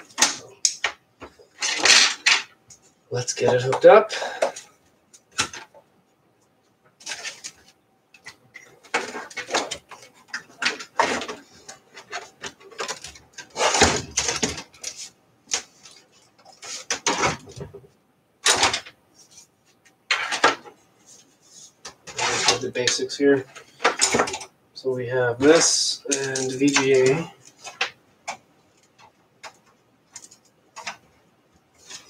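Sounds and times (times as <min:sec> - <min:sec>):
computer hardware clattering: 0:07.0 - 0:19.0, 0:20.1 - 0:20.8, 0:21.8 - 0:24.5, 0:25.4 - 0:31.2.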